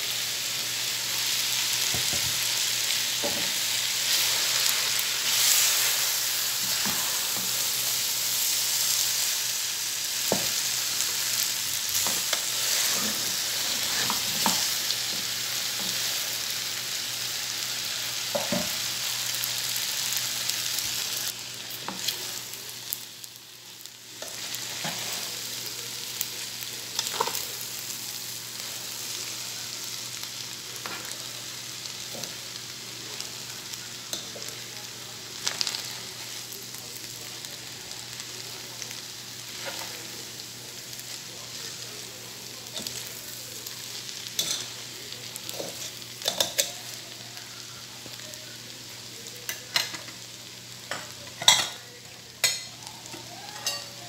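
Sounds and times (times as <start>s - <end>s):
food sizzling in a pot: 0.0s - 54.0s.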